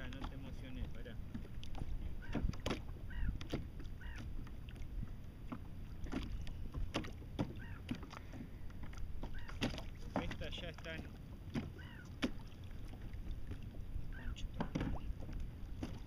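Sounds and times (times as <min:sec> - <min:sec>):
wind on microphone: 0:00.0 - 0:07.7
water lapping at a kayak: 0:00.0 - 0:16.0.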